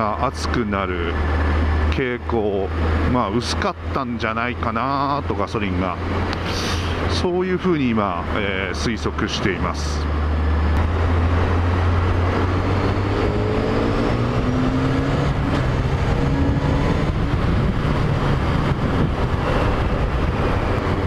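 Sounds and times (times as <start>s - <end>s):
motorcycle engine revving: 10.2s - 21.0s
wind rushing: 10.6s - 21.0s.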